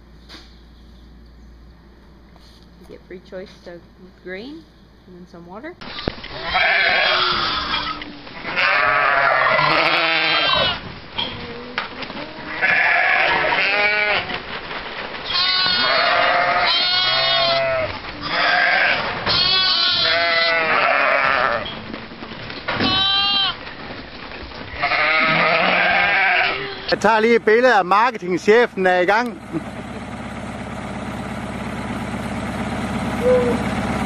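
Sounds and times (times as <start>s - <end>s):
sheep bleating: 6.3s - 10.8s, 11.4s - 14.4s, 15.2s - 21.8s, 22.7s - 23.6s, 24.7s - 27.0s.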